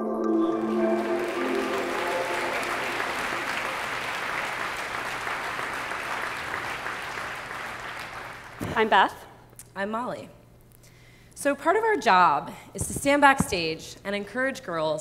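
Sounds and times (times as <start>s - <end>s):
held music notes: 0.0s - 4.1s
audience applauding: 0.4s - 9.1s.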